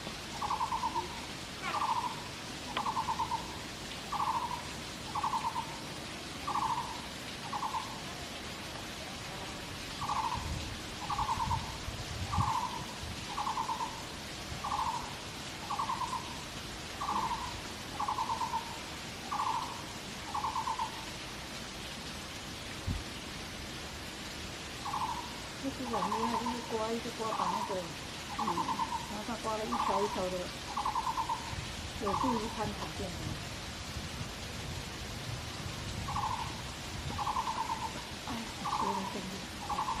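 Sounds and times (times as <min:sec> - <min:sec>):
bird trilled call: 0:02.8 - 0:03.5, 0:29.7 - 0:31.5, 0:36.1 - 0:36.5, 0:37.2 - 0:37.9, 0:38.6 - 0:40.0.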